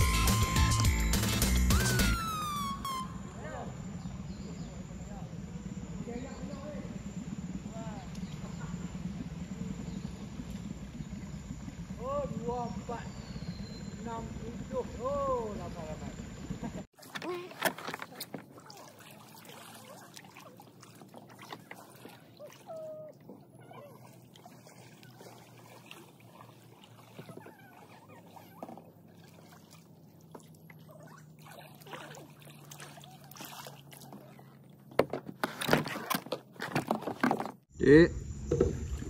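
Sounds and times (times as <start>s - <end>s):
small splashes: 16.9s - 37.5s
water dripping off paddle: 17.1s - 22.7s.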